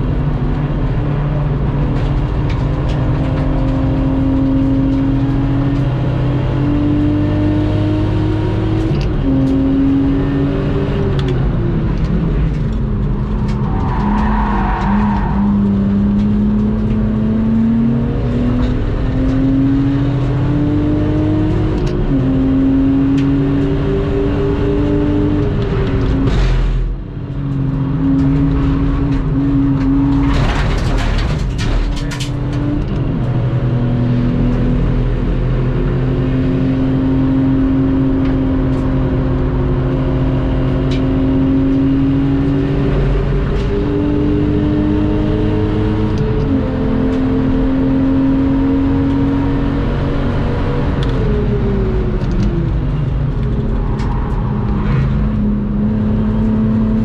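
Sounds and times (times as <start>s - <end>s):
car engine accelerating: 0.0s - 57.0s
rough rattling noise: 29.1s - 32.5s.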